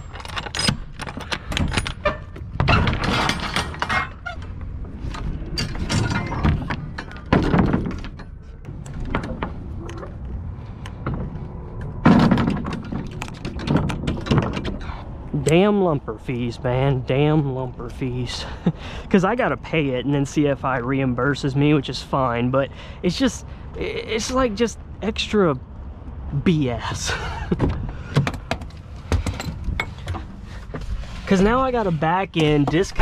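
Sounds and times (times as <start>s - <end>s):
trailer door lock rods rattling: 0.0s - 15.6s.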